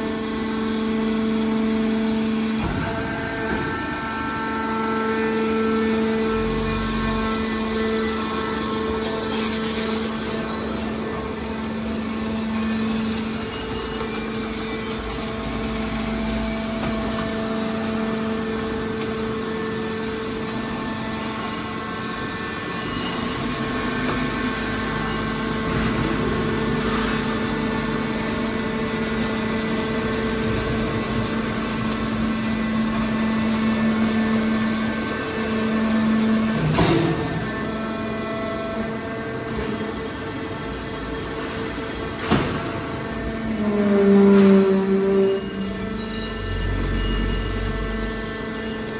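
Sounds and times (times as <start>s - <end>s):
hydraulic pump motor humming: 0.0s - 48.9s.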